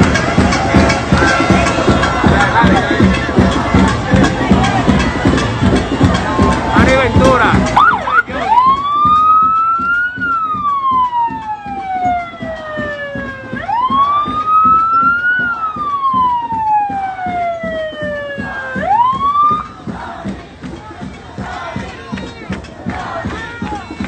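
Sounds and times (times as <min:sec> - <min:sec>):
street crowd noise: 0:00.0 - 0:24.0
siren wailing: 0:07.8 - 0:19.8.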